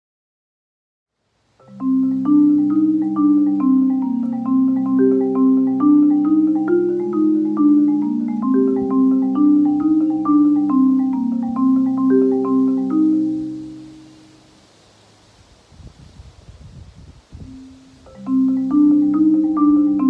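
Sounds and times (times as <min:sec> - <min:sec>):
marimba played with mallets: 0:01.6 - 0:14.6, 0:17.4 - 0:20.0.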